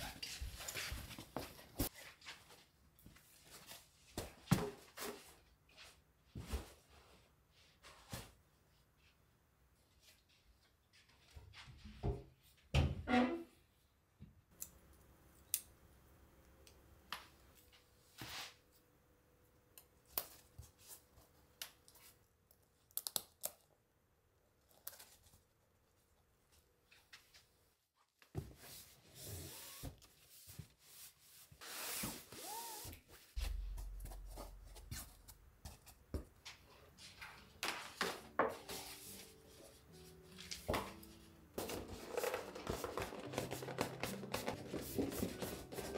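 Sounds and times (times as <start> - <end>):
paper bag rustling and crinkling: 41.6 - 45.9.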